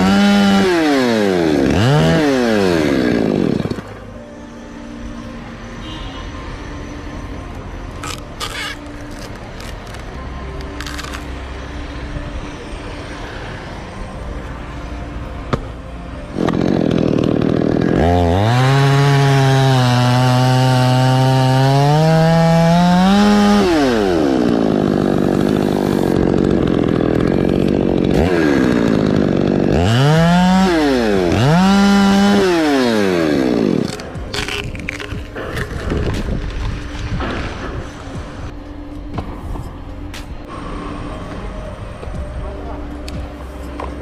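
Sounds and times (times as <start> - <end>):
chainsaw cutting wood: 0.0 - 4.0, 8.0 - 10.0, 16.3 - 38.2.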